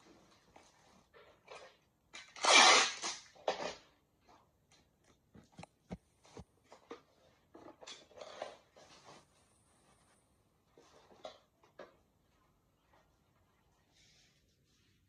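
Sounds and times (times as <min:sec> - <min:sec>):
packing tape ripping: 0:02.2 - 0:03.8.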